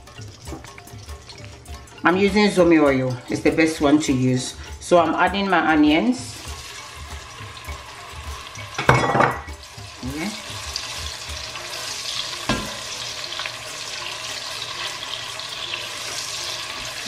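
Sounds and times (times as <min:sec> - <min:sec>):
onions sizzling in oil: 0:00.0 - 0:17.0
utensil clattering on pot: 0:08.6 - 0:09.6, 0:12.4 - 0:13.0.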